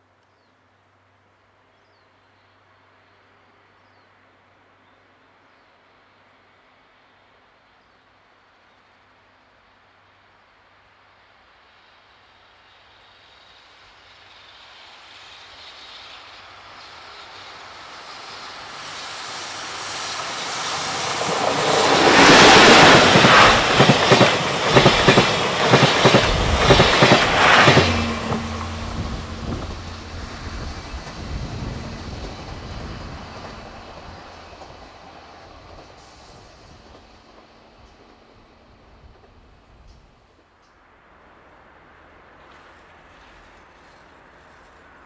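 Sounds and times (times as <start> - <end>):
train rumble: 12.6 - 45.0.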